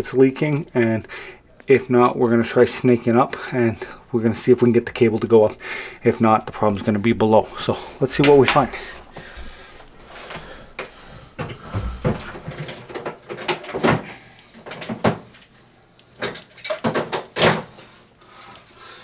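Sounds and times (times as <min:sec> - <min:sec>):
tools knocking and clattering: 0:11.4 - 0:14.1, 0:16.2 - 0:17.7.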